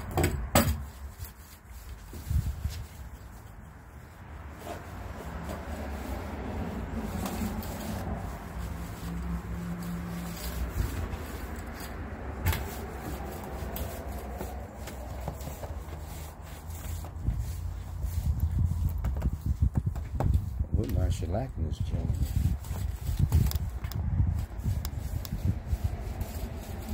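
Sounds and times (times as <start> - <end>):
pad rubbing on wooden boards: 4.4 - 20.6, 22.3 - 26.9.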